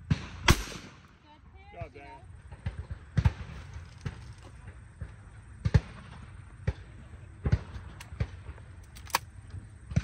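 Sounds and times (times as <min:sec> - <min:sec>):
shotgun bangs: 0:00.1 - 0:01.0.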